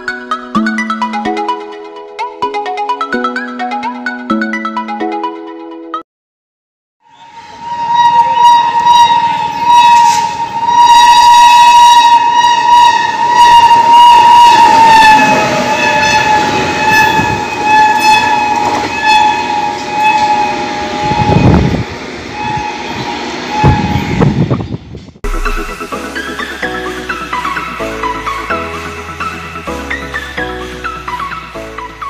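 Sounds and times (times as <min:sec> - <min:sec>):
locomotive horn blast: 0:07.2 - 0:24.4
train rumble: 0:07.2 - 0:31.9
wheels knocking on rails: 0:15.2 - 0:21.8.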